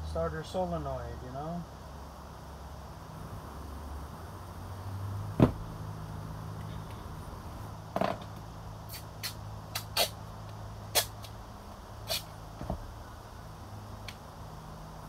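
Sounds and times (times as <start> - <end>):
steady low hum: 0.0 - 15.0
knocks: 5.4 - 5.6.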